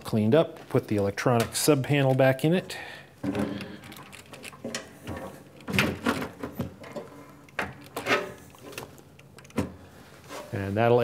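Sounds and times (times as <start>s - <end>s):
metal clunks and scrapes: 4.4s - 10.7s.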